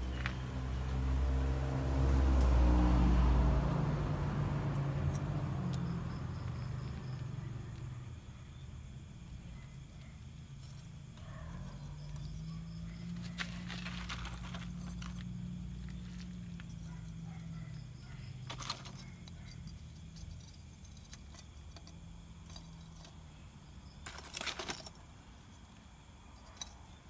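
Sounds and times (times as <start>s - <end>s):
scraping rustle: 12.1s - 17.0s, 24.0s - 25.1s
dry twigs clicking and scraping: 13.0s - 17.0s.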